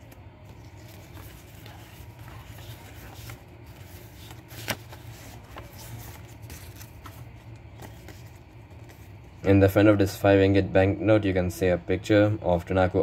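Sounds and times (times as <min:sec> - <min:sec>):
banknotes rustling and crinkling: 0:00.0 - 0:09.6.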